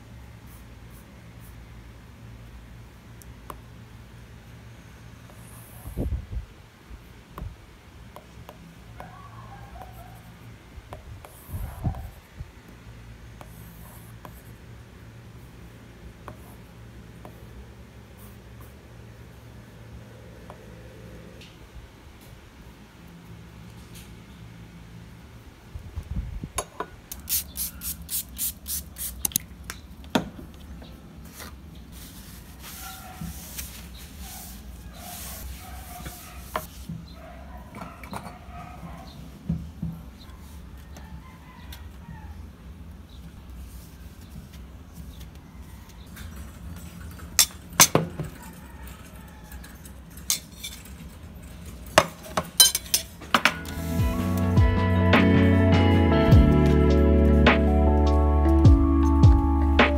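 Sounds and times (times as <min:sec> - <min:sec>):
spray bottle spraying: 0:27.2 - 0:29.4.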